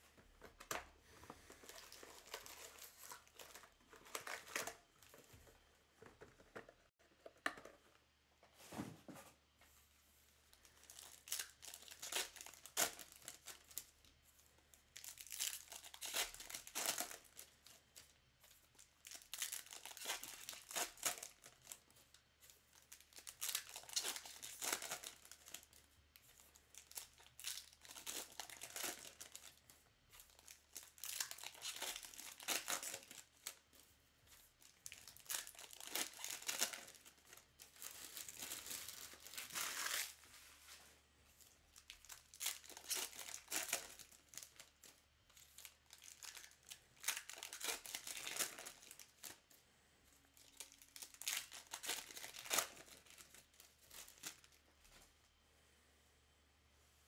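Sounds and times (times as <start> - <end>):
foil wrappers tearing and crinkling: 1.5 - 4.9, 10.6 - 14.0, 14.9 - 18.1, 18.7 - 29.6, 30.2 - 33.7, 34.5 - 40.2, 41.7 - 49.4, 50.4 - 54.6.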